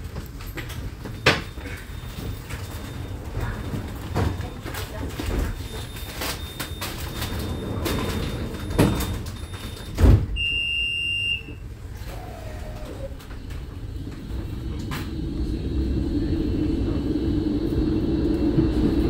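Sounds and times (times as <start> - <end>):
tram doors clattering: 0.0 - 10.4, 11.4 - 19.0
high electronic door beep: 1.2 - 11.6.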